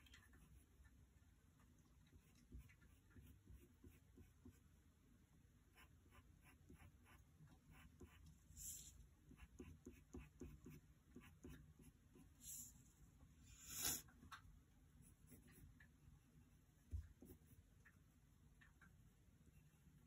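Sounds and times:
pencil scratching on paper: 2.2s - 4.6s, 5.7s - 12.7s, 15.0s - 15.7s.

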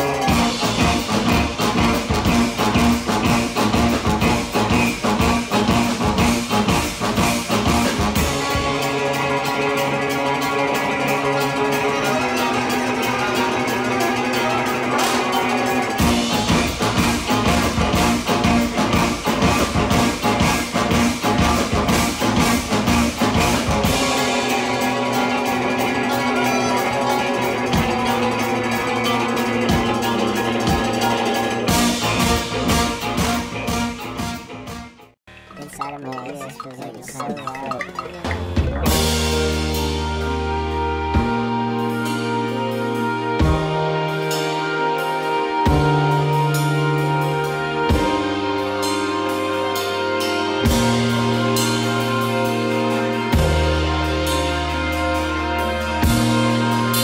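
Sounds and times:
steady drum beat: 0.0s - 8.8s
live band playing: 0.0s - 57.0s
repeating bass line: 35.3s - 39.7s.

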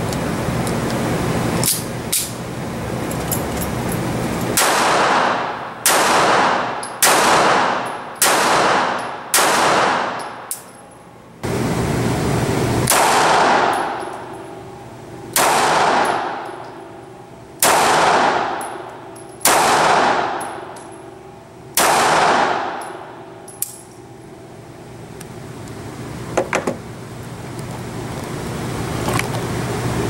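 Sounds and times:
pistol shots with ringing echo: 4.6s - 10.7s, 12.8s - 14.7s, 15.3s - 17.0s, 17.6s - 23.8s.

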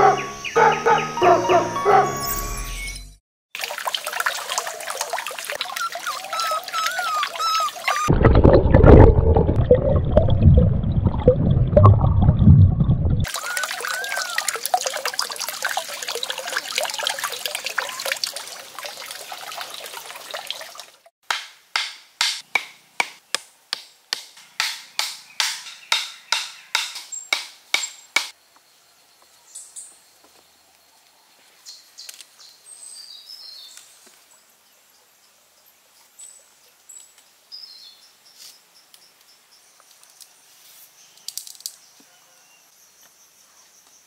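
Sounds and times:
birds chirping: 0.0s - 2.5s, 5.6s - 8.1s
rushing water-like noise: 13.2s - 21.1s
wooden stakes being pounded: 21.2s - 28.3s.

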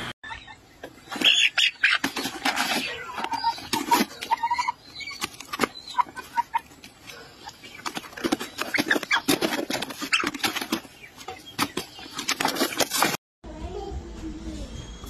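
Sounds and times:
chicken clucking and squawking: 0.2s - 13.1s.

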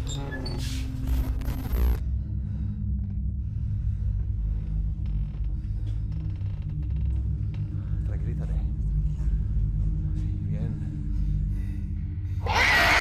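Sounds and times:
low rumble: 0.0s - 12.4s
faint creaks: 4.6s - 8.0s.

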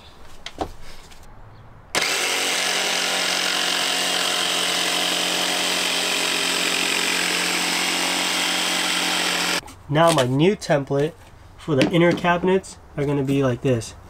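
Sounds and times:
jigsaw cutting plywood: 2.0s - 9.6s.

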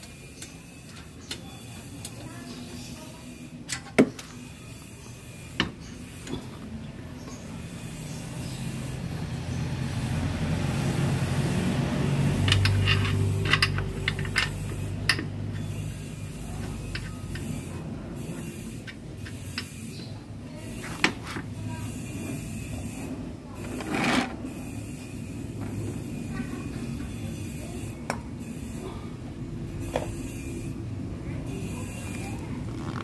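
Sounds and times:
vehicle engine passing by: 7.8s - 15.0s
hand tools clicking on metal: 12.4s - 15.7s.

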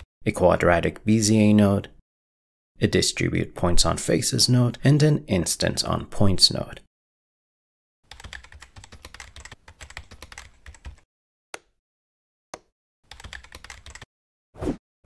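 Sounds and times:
computer keyboard typing: 8.1s - 11.0s, 13.1s - 14.1s.

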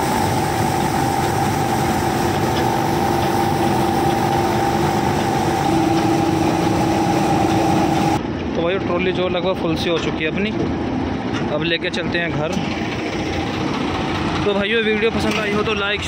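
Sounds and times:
combine harvester droning: 0.0s - 8.2s, 10.8s - 16.0s
steady whining tones: 0.0s - 8.3s.

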